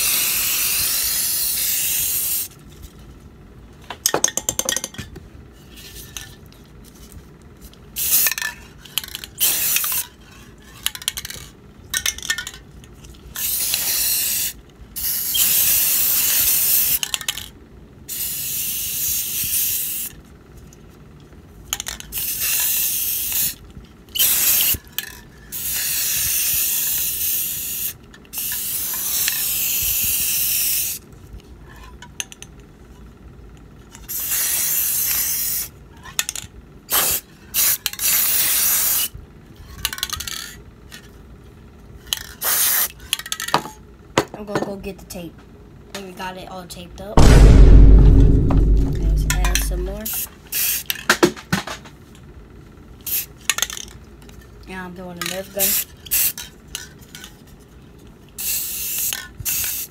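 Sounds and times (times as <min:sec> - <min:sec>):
spray paint can hissing: 0:00.0 - 0:02.5, 0:08.0 - 0:08.3, 0:09.4 - 0:10.0, 0:13.4 - 0:17.0, 0:18.1 - 0:20.1, 0:22.1 - 0:23.6, 0:24.2 - 0:24.8, 0:25.5 - 0:31.0, 0:34.1 - 0:35.7, 0:36.9 - 0:39.1, 0:42.4 - 0:42.9, 0:50.1 - 0:50.8, 0:53.0 - 0:53.3, 0:55.6 - 0:56.4, 0:58.4 - 0:59.9.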